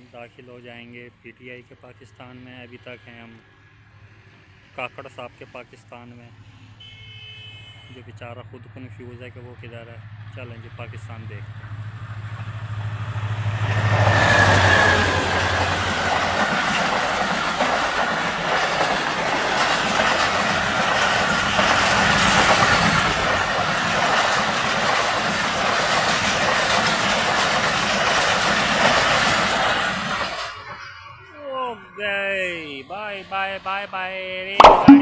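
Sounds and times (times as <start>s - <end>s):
train coaches rushing past: 11.3s - 34.2s
wheels clattering over rail joints: 13.6s - 30.8s
locomotive engine drone: 27.2s - 34.2s.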